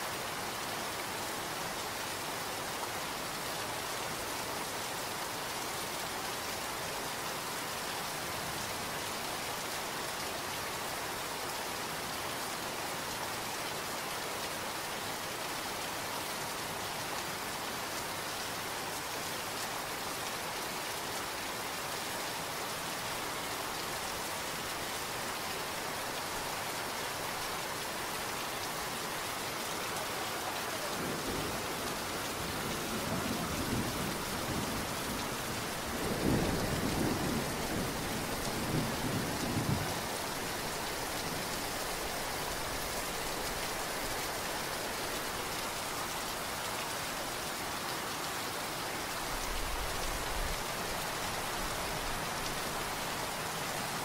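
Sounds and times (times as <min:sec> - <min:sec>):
steady rain falling: 0:00.0 - 0:54.0.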